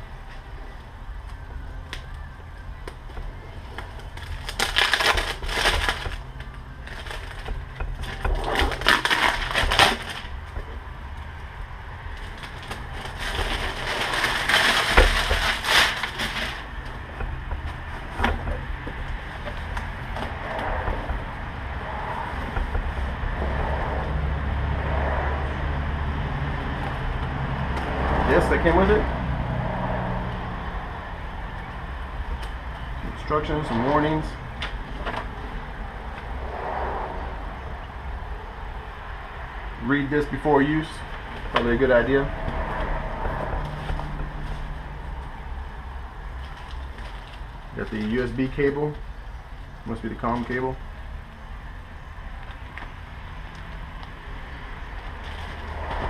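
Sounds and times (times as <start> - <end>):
cardboard box rustling and scraping: 12.3 - 16.8.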